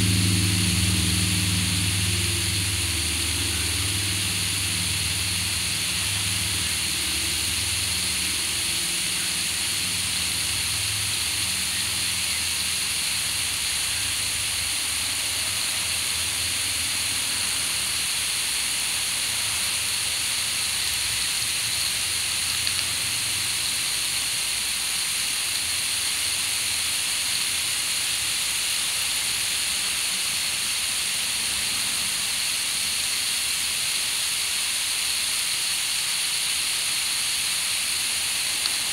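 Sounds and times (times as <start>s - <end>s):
low hum: 0.0s - 17.9s
hose water spraying on lawn: 0.0s - 38.9s.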